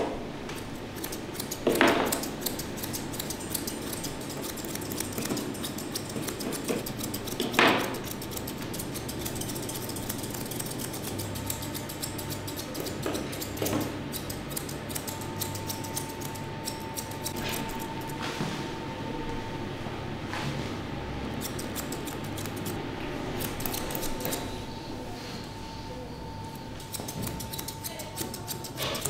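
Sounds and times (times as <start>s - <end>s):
scissors snipping fur: 0.6s - 18.2s, 21.4s - 24.5s, 26.8s - 29.0s.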